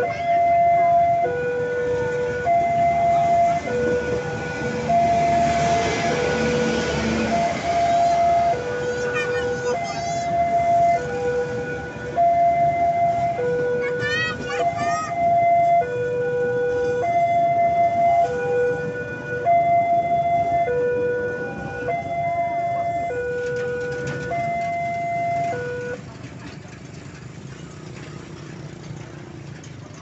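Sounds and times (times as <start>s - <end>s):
level-crossing two-tone alarm: 0.0s - 26.0s
train coaches rumbling past: 1.8s - 13.4s, 21.3s - 30.0s.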